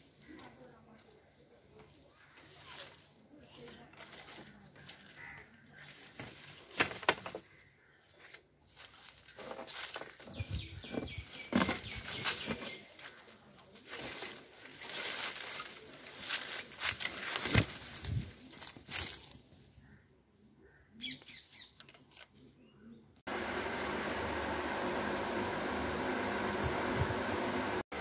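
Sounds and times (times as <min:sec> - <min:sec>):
leaves and twigs rustling: 0:00.0 - 0:20.0.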